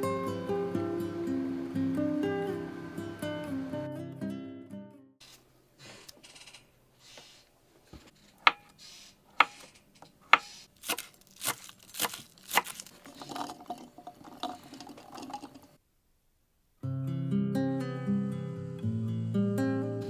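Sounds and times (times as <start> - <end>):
crinkling and rustling: 9.8 - 15.1.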